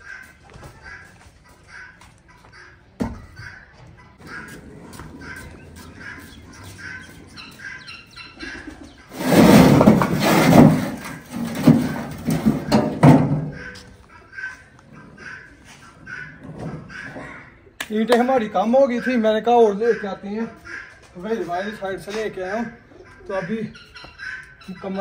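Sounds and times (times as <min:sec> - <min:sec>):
small birds chirping: 0:00.0 - 0:09.2, 0:18.4 - 0:25.0.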